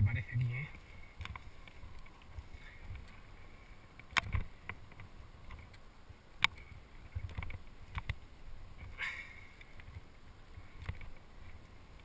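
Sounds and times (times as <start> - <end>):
climbing gear clicking on rock: 0.7 - 8.2, 10.7 - 12.0.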